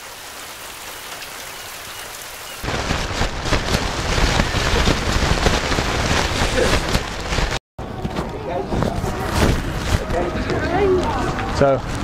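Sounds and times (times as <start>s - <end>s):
rain falling: 0.0s - 7.6s.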